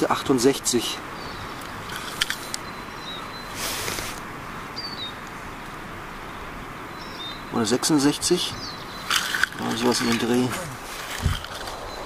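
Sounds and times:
outdoor background hiss: 0.0 - 12.0
brief rustle: 1.6 - 2.6, 3.6 - 4.2, 9.0 - 11.9.

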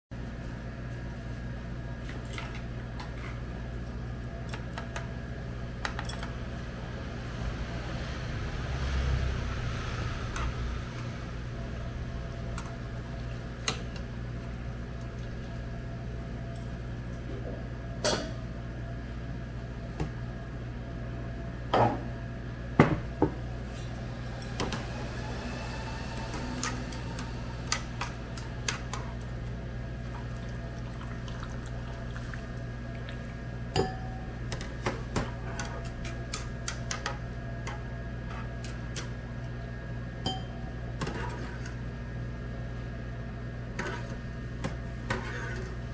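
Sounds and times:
steady low hum: 0.2 - 45.9
chopsticks scraping a frying pan: 45.0 - 45.8.

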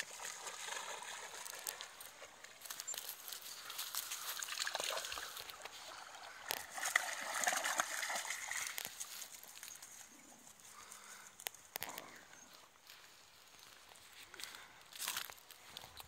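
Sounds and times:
water sloshing and splashing: 0.0 - 9.8.

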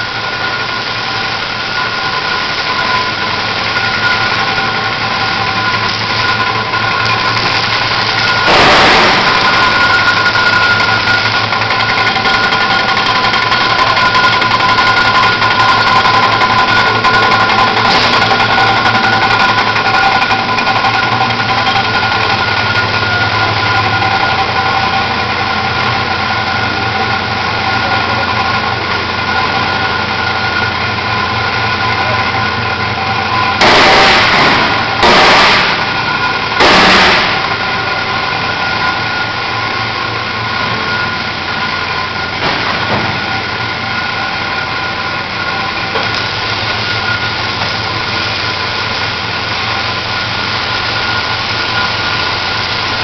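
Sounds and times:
loud hiss bursts: 0.0 - 16.6, 33.2 - 39.6
machinery humming: 0.0 - 53.0.

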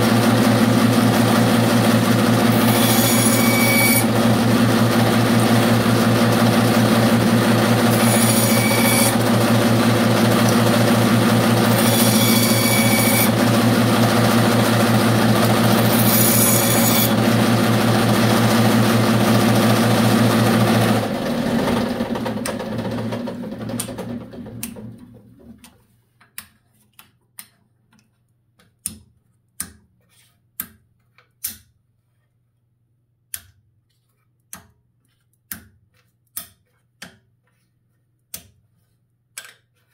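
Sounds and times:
bandsaw running: 0.0 - 25.0.

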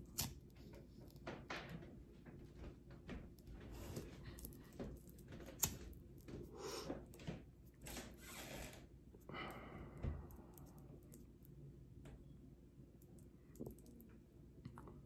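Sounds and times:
soft breathing: 6.3 - 7.2, 9.2 - 11.1.

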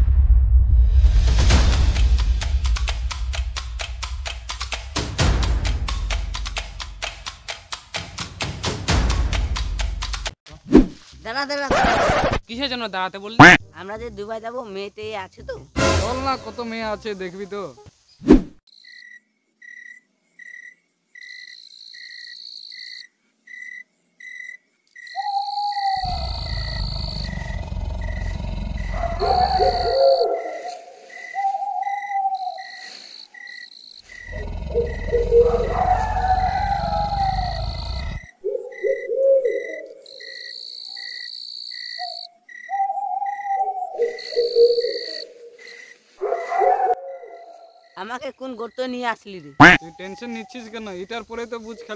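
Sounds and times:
crickets chirping: 12.8 - 51.9
high insect trill: 18.7 - 51.9
wavering animal call: 25.1 - 33.0, 34.1 - 41.2, 41.8 - 48.0.

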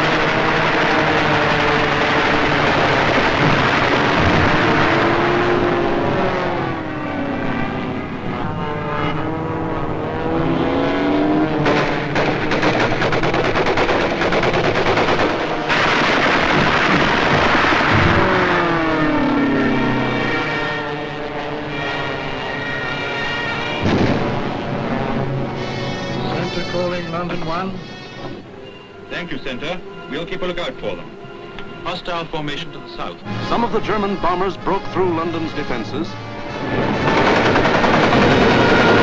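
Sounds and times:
fighter plane engines: 0.0 - 39.0
machine-gun fire: 11.6 - 18.7, 36.8 - 39.0.

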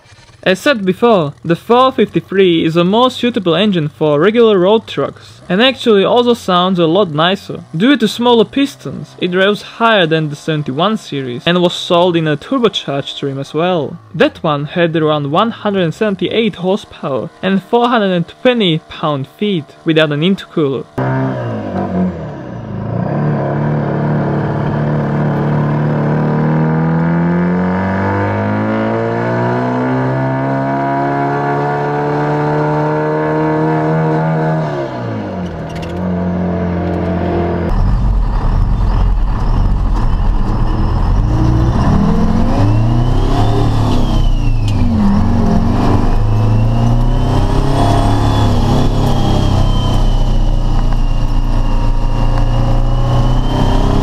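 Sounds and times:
diesel engine revving: 0.0 - 54.0
thin high whistle: 48.4 - 53.9.

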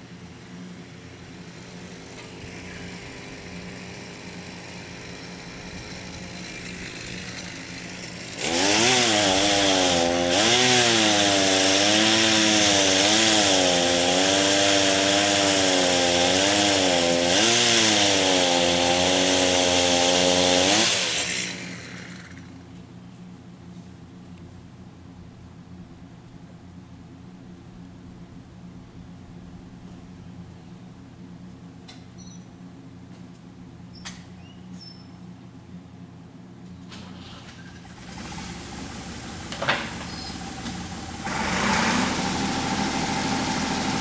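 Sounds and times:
chainsaw cutting wood: 1.4 - 22.6, 37.8 - 44.0.

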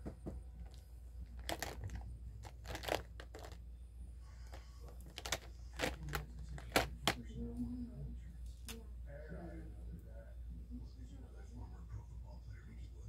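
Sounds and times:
hands rustling and clicking: 0.0 - 3.6, 4.5 - 7.2
low steady hum: 0.0 - 13.0.

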